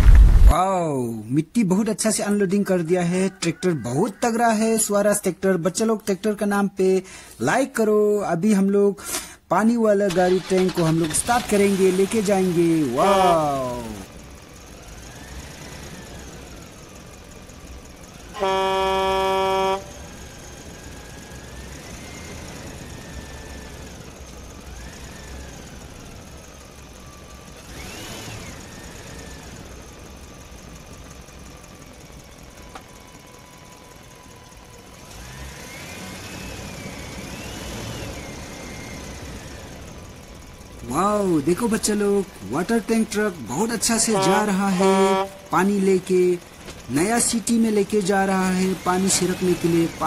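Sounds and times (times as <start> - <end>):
loud horn toot: 13.0 - 13.6, 18.3 - 20.1, 44.0 - 45.6
toy truck moving over gravel: 43.0 - 50.0.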